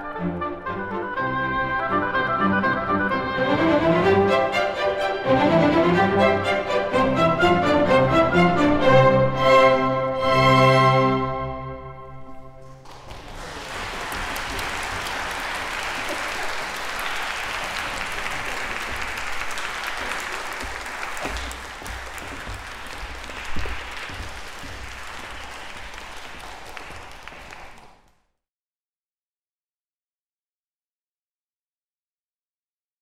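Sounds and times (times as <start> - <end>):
audience applauding: 12.6 - 28.2.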